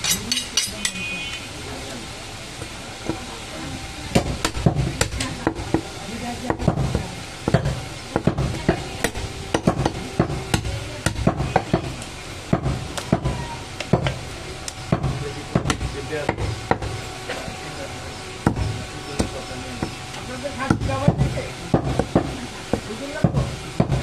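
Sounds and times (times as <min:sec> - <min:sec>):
knife chopping on wooden block: 0:06.5 - 0:11.9.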